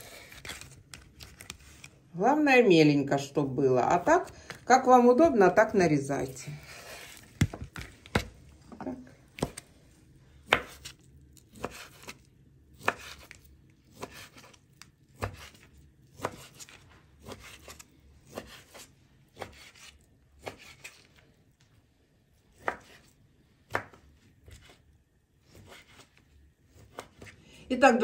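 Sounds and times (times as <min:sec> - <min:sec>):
knife chopping sausage: 0:10.4 - 0:21.1, 0:22.5 - 0:24.8, 0:25.4 - 0:27.4.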